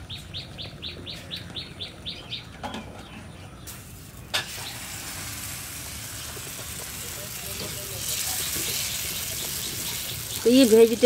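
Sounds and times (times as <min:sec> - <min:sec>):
bird chirping: 0:00.0 - 0:03.8, 0:08.2 - 0:11.0
batter sizzling on griddle: 0:03.7 - 0:11.0.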